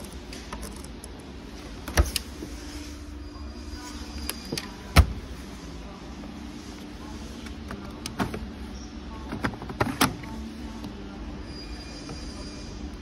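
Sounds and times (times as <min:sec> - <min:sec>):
shop background noise: 0:00.0 - 0:13.0.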